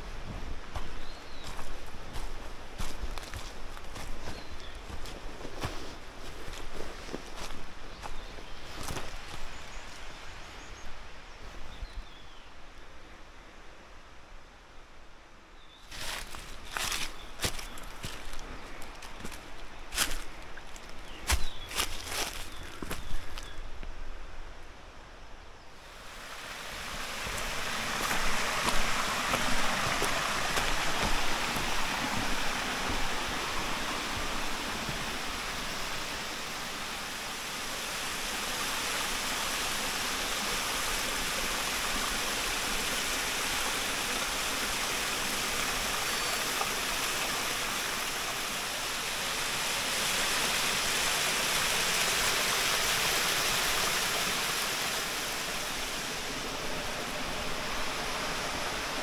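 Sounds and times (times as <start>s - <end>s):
footsteps on leaves and rock: 0.0s - 10.2s, 15.8s - 23.9s, 26.8s - 36.9s
waterfall rushing: 25.8s - 59.0s.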